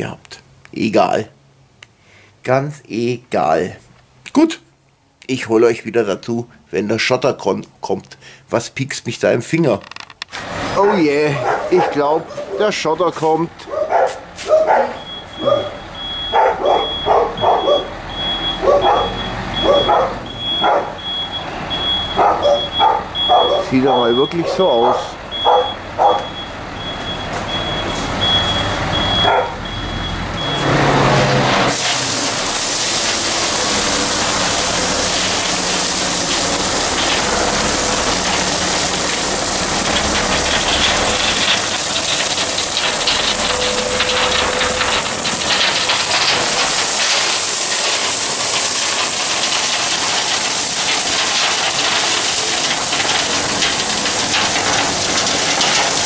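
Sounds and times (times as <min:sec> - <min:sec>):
truck engine running: 0:11.2 - 0:56.0
truck reversing beeper: 0:13.9 - 0:56.0
gravel pouring out of tipper: 0:31.1 - 0:56.0.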